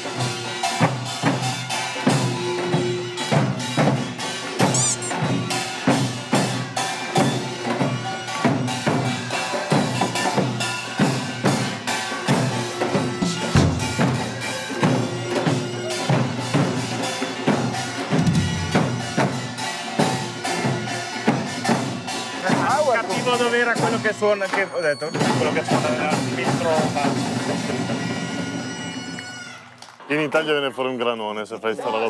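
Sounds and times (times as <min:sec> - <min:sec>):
barrel drums beaten rhythmically: 0:00.0 - 0:24.2
ringing percussion: 0:00.0 - 0:29.7.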